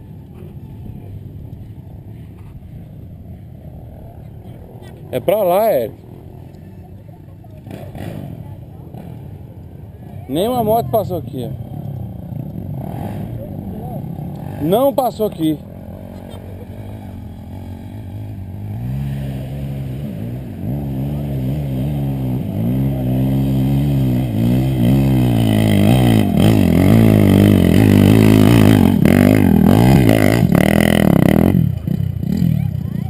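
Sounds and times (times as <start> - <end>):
motorcycle engine revving: 7.5 - 33.0.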